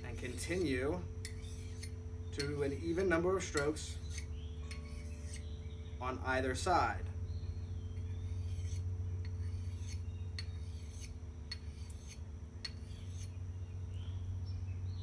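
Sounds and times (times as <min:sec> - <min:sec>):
axe blade scraping on sharpener: 0:00.0 - 0:05.6, 0:07.9 - 0:13.4.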